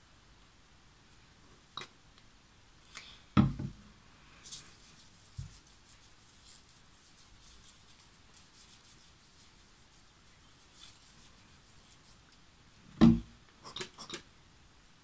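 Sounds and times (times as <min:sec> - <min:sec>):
bottle knocking on surface: 0:03.4 - 0:03.8
hands rubbing skin: 0:04.4 - 0:12.4.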